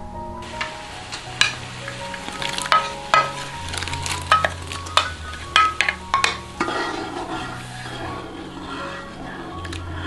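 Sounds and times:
water bubbling in a pot: 0.6 - 9.1
utensil clinking against dishes: 1.2 - 6.9.

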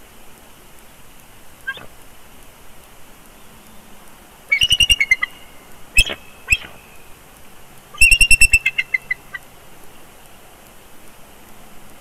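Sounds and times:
eagle chirping calls: 1.7 - 1.9, 4.5 - 7.0, 7.9 - 9.4.

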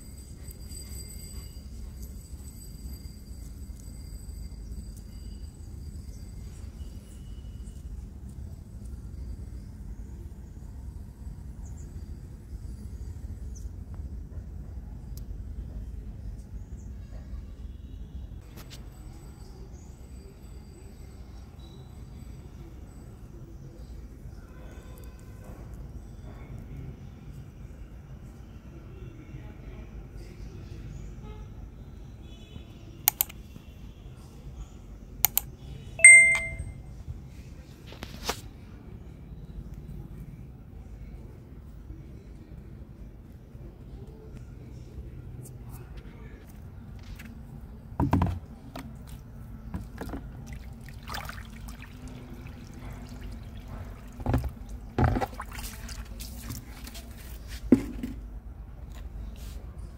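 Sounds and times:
bright notification bell ding: 36.0 - 36.7
water trickling onto soil: 48.6 - 57.7.

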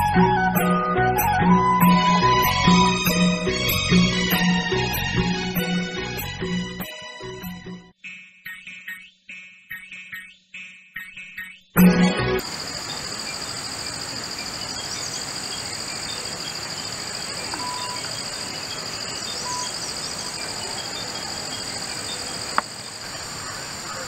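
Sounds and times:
insects chirring: 11.4 - 24.0
outdoor background hiss: 11.8 - 24.0
short bird calls: 12.8 - 24.0.

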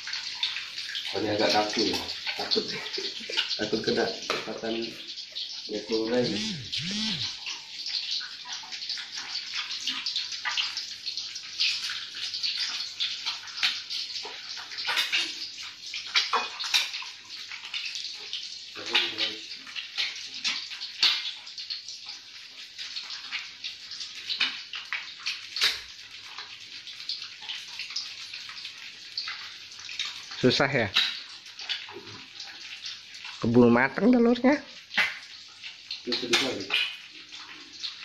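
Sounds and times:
oil sizzling in a wok: 0.0 - 38.0
oil popping and spitting: 34.9 - 35.2, 36.0 - 37.0.

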